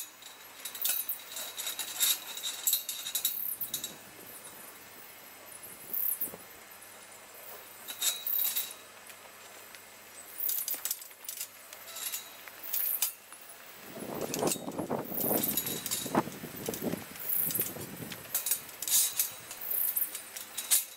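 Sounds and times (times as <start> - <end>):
metal panels clanking and rattling: 14.1 - 20.9.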